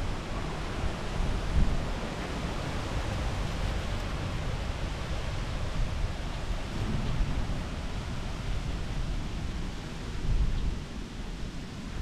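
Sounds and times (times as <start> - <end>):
strong wind on microphone: 0.0 - 11.0.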